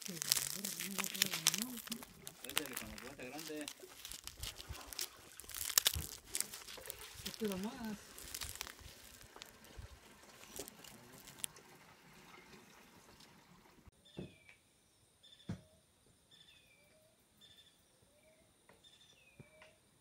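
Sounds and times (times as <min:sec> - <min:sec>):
corn husks crinkling: 0:00.0 - 0:11.9.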